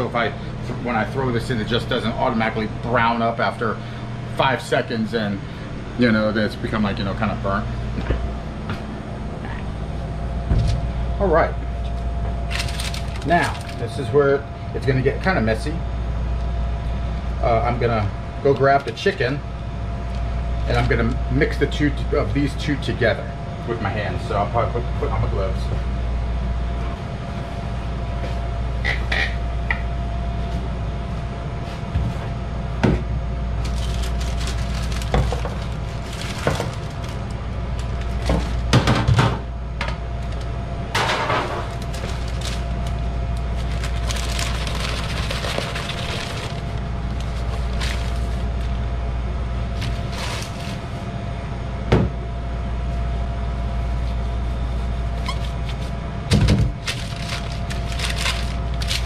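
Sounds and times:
kitchen ventilation hum: 0.0s - 59.0s
plastic gloves rustling: 12.4s - 13.9s, 33.5s - 38.7s, 41.5s - 48.8s, 49.7s - 51.1s, 56.7s - 59.0s.

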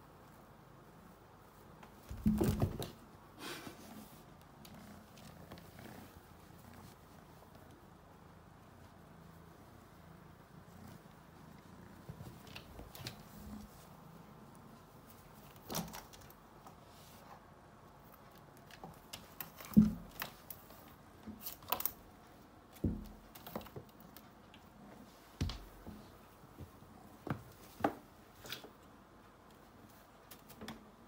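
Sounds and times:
soft thumps: 2.0s - 3.0s.

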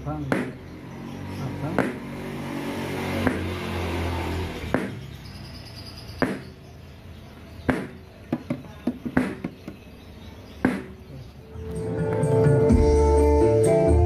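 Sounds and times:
sharp test clicks through speakers: 0.3s - 0.6s, 1.7s - 2.1s, 4.6s - 5.1s, 6.2s - 6.6s, 7.7s - 9.8s.

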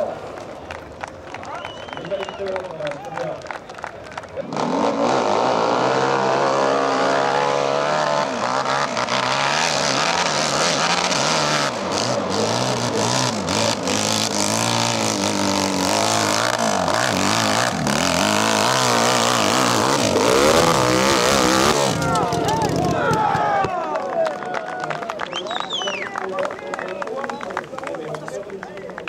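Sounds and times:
dirt bike engine revving: 4.4s - 23.5s.

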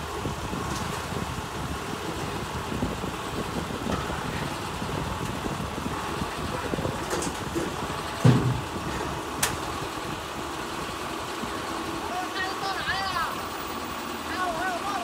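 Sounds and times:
diesel engine idling: 0.0s - 15.0s
low thump: 8.2s - 8.7s.

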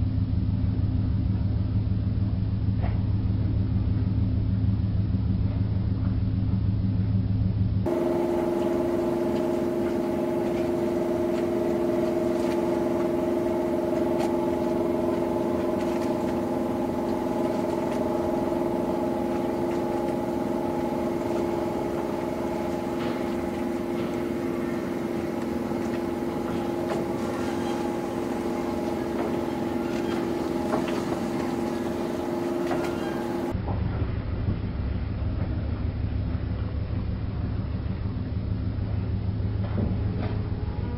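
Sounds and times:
boat engine running: 0.0s - 40.9s.

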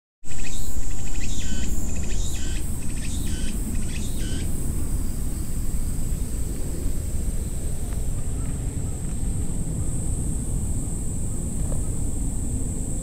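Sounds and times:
insects droning: 0.3s - 13.0s
wind rumble on microphone: 0.3s - 13.0s.

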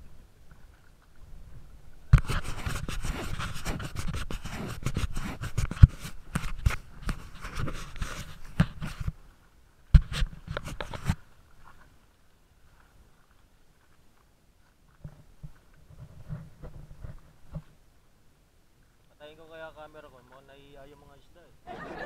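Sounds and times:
scratching and scraping: 2.1s - 9.2s, 9.9s - 11.9s, 14.9s - 17.7s.

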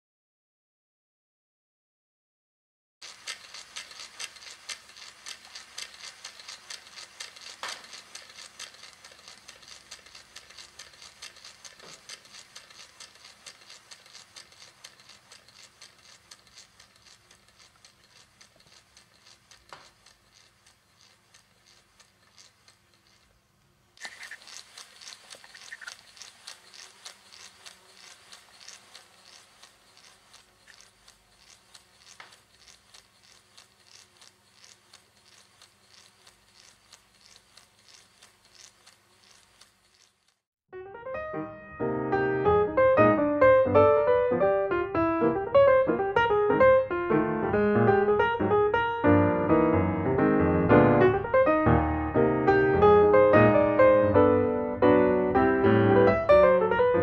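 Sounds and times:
light mechanical clatter: 3.0s - 40.4s, 42.4s - 57.0s
model air engine puffing: 24.0s - 40.1s.

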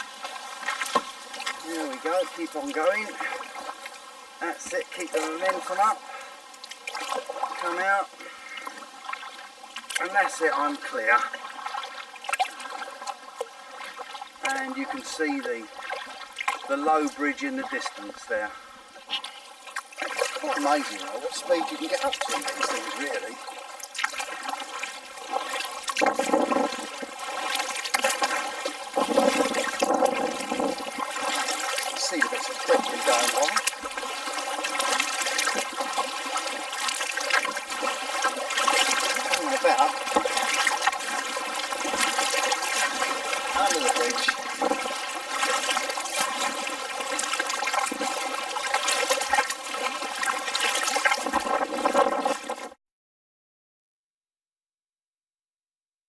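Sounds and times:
paddle splashing in water: 0.0s - 52.8s.

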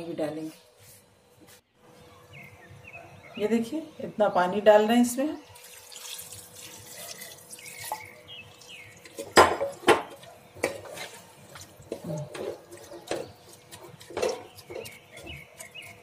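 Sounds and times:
spatula stirring in metal pot: 9.0s - 16.0s.

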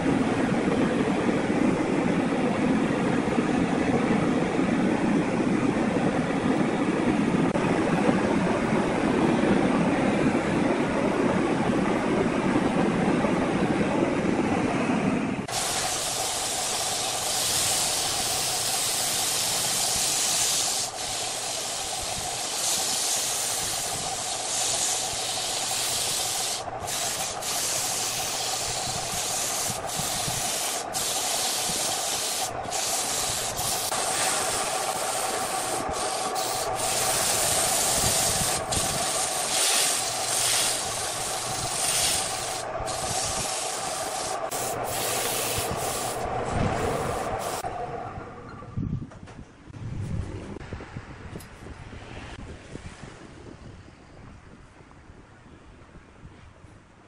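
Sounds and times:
sandpaper hissing on wood: 15.5s - 47.6s
lathe motor humming: 20.6s - 48.3s.

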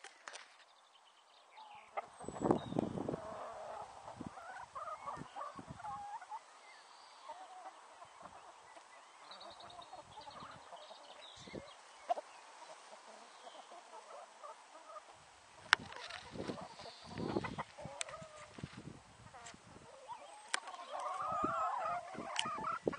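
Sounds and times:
hens clucking: 1.6s - 22.9s.

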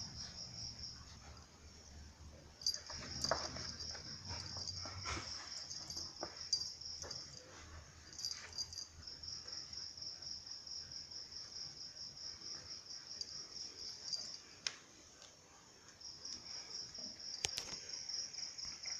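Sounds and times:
insect chirping trill: 2.6s - 7.4s, 8.0s - 14.4s.

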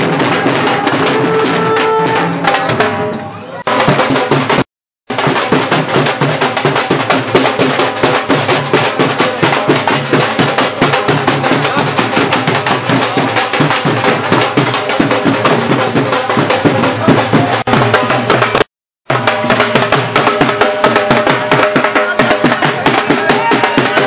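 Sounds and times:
drums beating fast rhythm: 0.0s - 24.0s.

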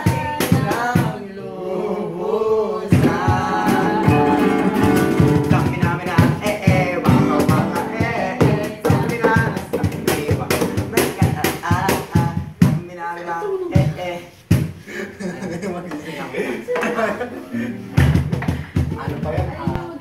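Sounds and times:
singing: 0.0s - 14.4s
acoustic guitars strummed: 2.9s - 12.6s, 17.5s - 19.8s.

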